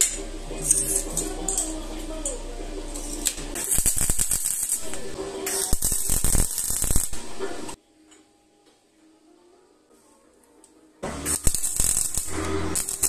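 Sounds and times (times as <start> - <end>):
welding arc crackling: 0.0 - 7.8, 11.0 - 13.0.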